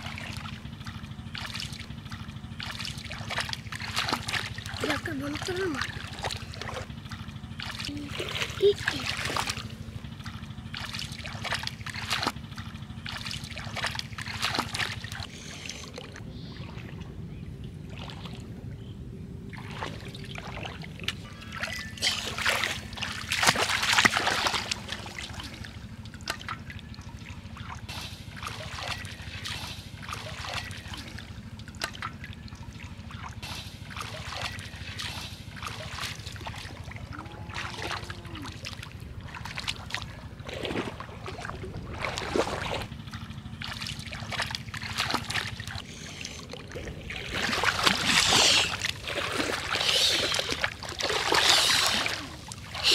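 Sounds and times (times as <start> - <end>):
foot sloshing through water: 0.0 - 52.9
low steady rumble: 0.0 - 52.9
hands splashing in shallow water: 39.3 - 42.9, 47.0 - 52.9.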